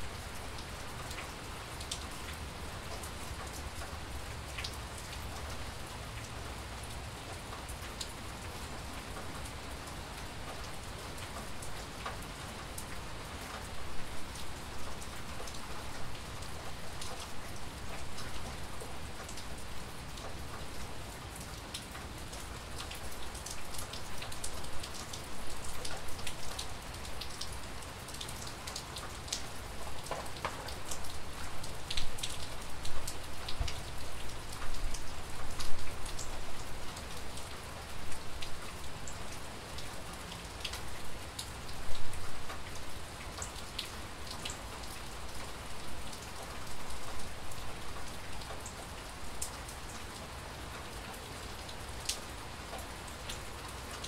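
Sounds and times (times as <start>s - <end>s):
steady rain hiss: 0.0s - 54.0s.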